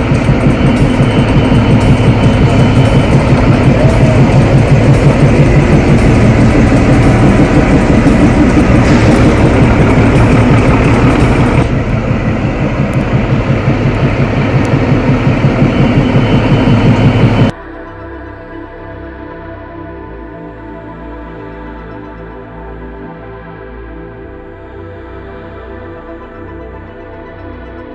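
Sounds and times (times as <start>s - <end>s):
diesel locomotive rumble: 0.0s - 17.6s.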